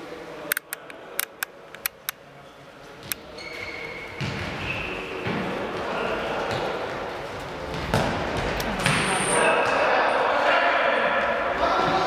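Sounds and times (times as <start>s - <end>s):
noise of play: 0.4s - 3.2s
ball bouncing on hall floor: 3.0s - 9.8s.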